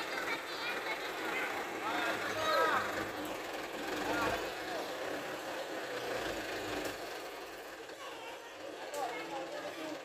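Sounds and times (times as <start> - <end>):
diesel truck engine running: 0.0 - 10.0.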